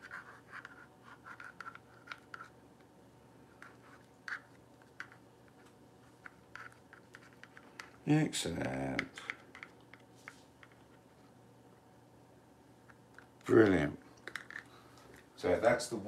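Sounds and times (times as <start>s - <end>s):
stir stick scraping plastic cup: 0.0s - 2.6s, 3.5s - 7.9s.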